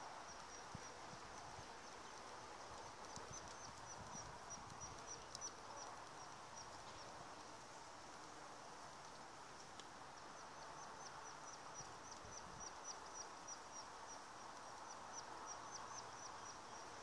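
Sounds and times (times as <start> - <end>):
open-air background hiss: 0.0 - 17.0.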